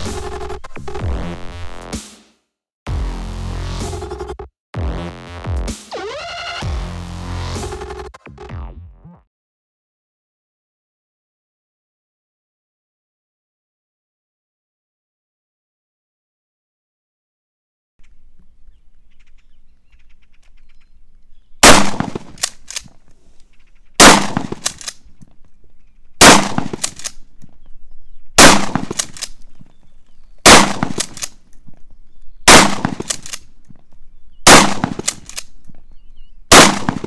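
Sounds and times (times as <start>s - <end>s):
shotgun shots: 21.6s - 22.8s, 24.0s - 24.9s, 26.2s - 27.2s, 28.4s - 29.4s, 30.4s - 31.3s, 32.5s - 33.4s, 34.4s - 35.4s, 36.5s - 37.0s
shotgun pump clacks: 24.4s - 25.0s, 28.8s - 29.4s, 30.8s - 31.4s, 32.9s - 33.4s, 34.8s - 35.5s.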